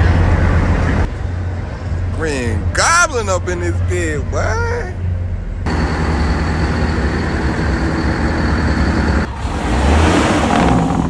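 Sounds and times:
diesel engines idling: 0:00.0 - 0:09.5
faint high whine: 0:05.7 - 0:09.3.

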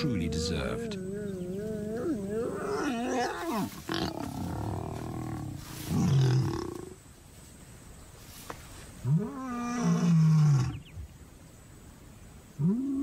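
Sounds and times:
lions snarling and growling: 0:00.0 - 0:07.0.

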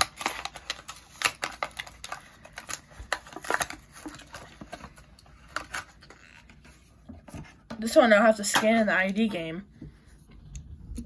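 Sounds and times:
plastic packaging crackling and tearing: 0:00.0 - 0:06.6.

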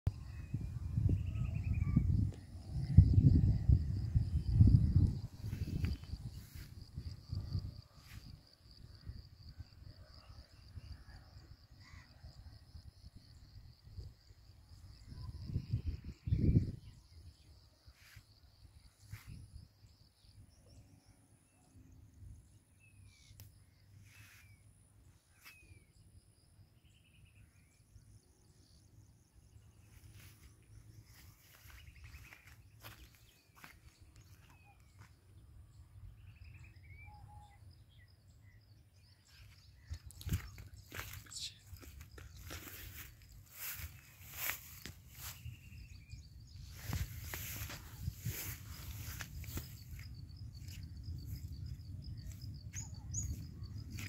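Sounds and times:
wind rumbling on microphone: 0:00.1 - 0:17.8, 0:39.7 - 0:54.0
high insect drone: 0:00.4 - 0:21.1, 0:36.0 - 0:54.0.

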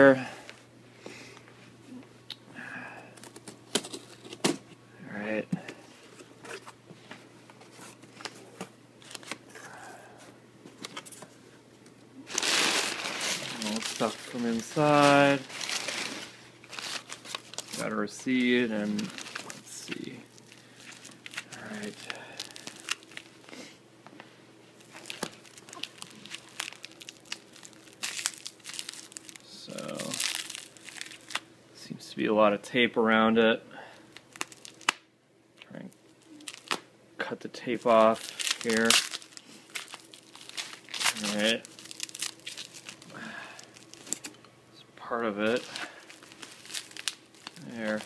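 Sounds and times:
packing paper crinkling: 0:07.7 - 0:09.5, 0:12.3 - 0:23.7, 0:24.8 - 0:31.5, 0:34.1 - 0:35.0, 0:36.2 - 0:36.8, 0:37.7 - 0:44.4, 0:45.4 - 0:48.0.

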